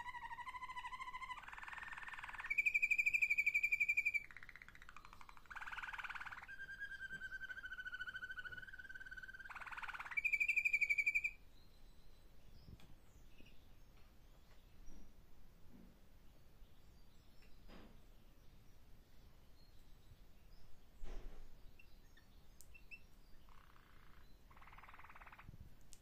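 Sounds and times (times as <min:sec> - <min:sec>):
canary singing trills: 0:00.0 - 0:13.7, 0:21.6 - 0:25.6.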